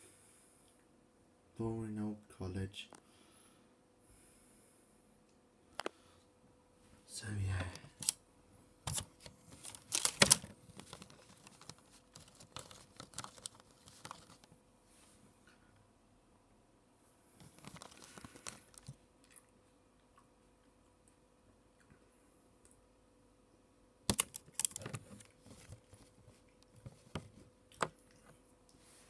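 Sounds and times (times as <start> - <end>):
faint steady hum: 0.0 - 29.0
crinkly rustling crackles: 8.9 - 15.1, 17.4 - 19.4, 24.3 - 27.5.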